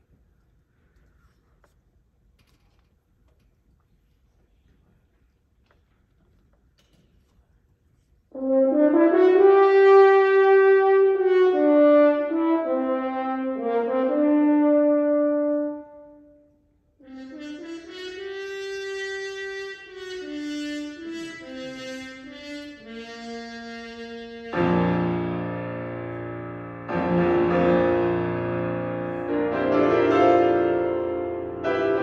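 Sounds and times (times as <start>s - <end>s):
french horn melody: 8.3s - 32.0s.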